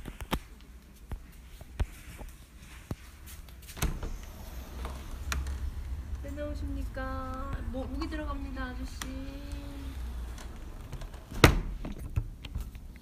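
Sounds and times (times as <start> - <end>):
footsteps: 0.0 - 12.7
low rumble: 3.8 - 11.4.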